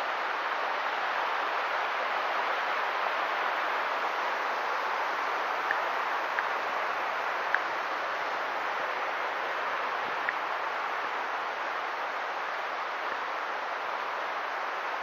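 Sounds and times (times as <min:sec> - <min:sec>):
water rushing: 0:00.0 - 0:15.0.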